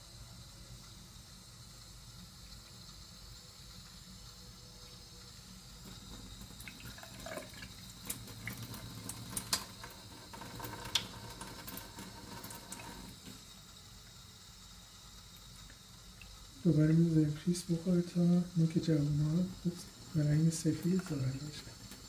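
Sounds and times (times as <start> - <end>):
sharp water drips: 5.8 - 14.2, 15.3 - 17.0.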